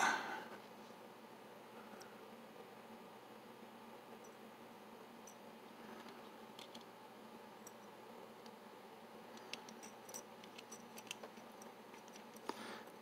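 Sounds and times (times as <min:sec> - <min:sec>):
low steady hiss: 0:00.0 - 0:13.0
metal parts clicking: 0:09.4 - 0:12.5.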